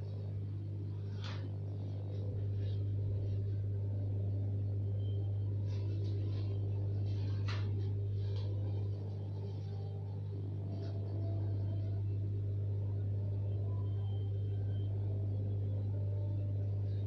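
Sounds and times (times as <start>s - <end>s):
steady low hum: 0.0s - 17.0s
paper rustling: 1.0s - 1.9s, 5.6s - 9.9s.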